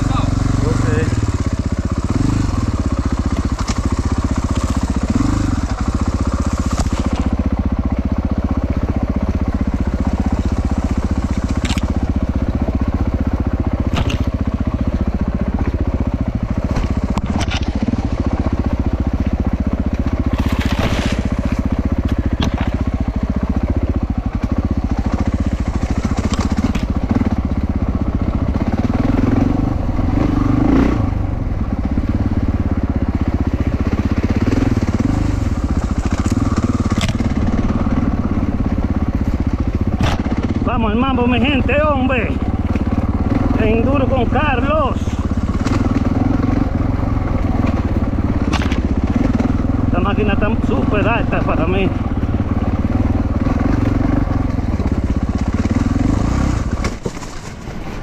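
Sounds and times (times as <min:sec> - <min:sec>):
motorcycle engine running: 0:00.0 - 0:58.0
stones crunching under tyres: 0:13.8 - 0:14.4, 0:19.8 - 0:22.8, 0:47.5 - 0:49.5, 0:54.9 - 0:58.0.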